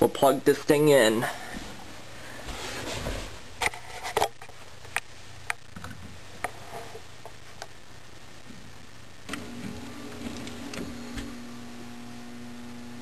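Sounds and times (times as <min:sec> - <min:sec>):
power cord rustling: 0:09.3 - 0:11.5.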